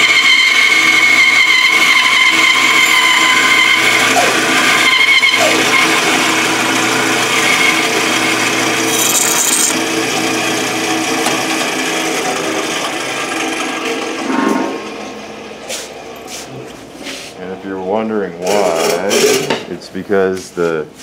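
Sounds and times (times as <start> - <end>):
bandsaw motor hum: 1.9 - 14.2
bandsaw blade rasping through wood: 2.7 - 9.8.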